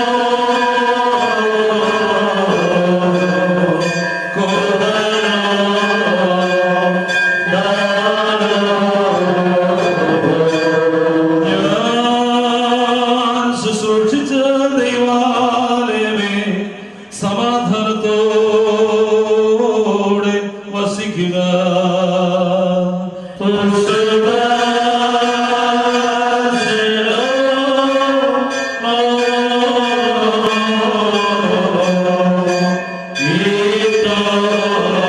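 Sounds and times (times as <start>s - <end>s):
men chanting a funeral hymn: 0.0s - 35.0s.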